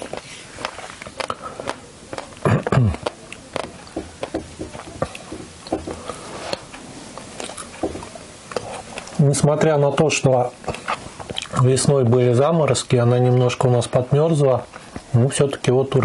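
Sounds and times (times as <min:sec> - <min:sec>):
person chewing with wet mouth smacks: 0:00.0 - 0:09.2, 0:10.6 - 0:11.6.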